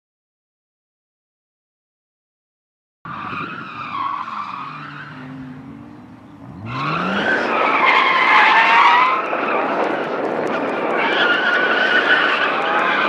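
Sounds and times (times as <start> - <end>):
car engine running hard: 3.1 - 13.0
car tyres squealing: 3.1 - 13.0.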